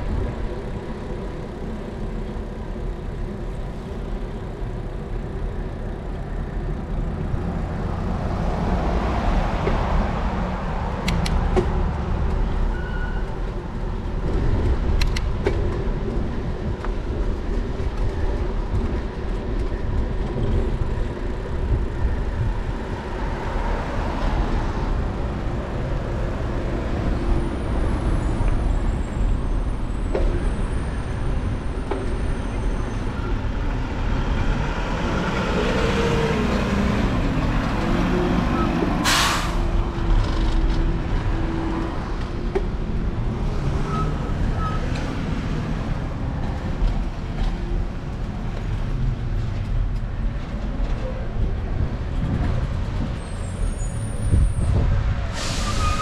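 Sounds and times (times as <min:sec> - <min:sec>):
road noise: 0:00.0 - 0:56.0
wind rumble: 0:06.9 - 0:39.0, 0:45.3 - 0:56.0.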